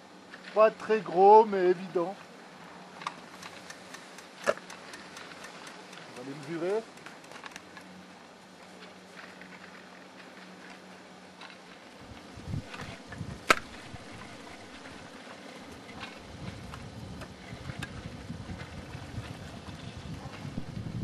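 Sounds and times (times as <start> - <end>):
wind rumbling on microphone: 12.0 - 21.0.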